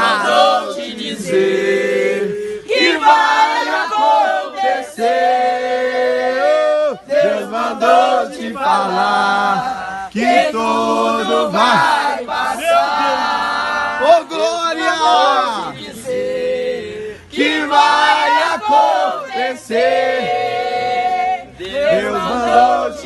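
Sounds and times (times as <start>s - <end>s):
voices chanting and singing: 0.0s - 23.0s.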